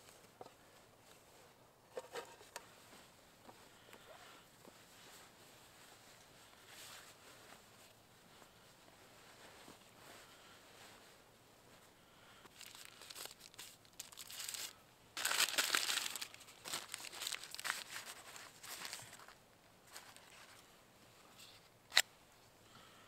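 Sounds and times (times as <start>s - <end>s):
food wrappings rustling: 12.5s - 20.6s.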